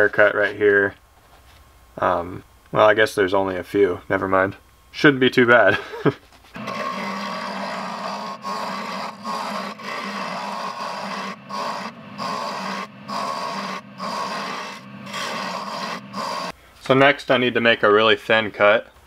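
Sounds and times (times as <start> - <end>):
chisel scraping wood on lathe: 6.6 - 16.5
wood lathe humming: 6.6 - 16.5.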